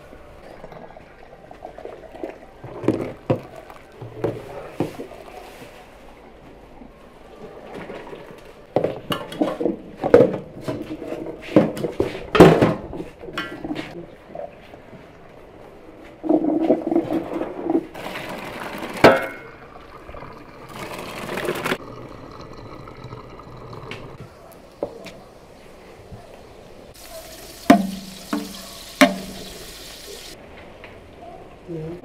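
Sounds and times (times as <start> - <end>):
water pouring through metal colander: 17.9 - 24.2, 27.0 - 30.4
spoon knocking on metal pot: 27.7 - 29.4.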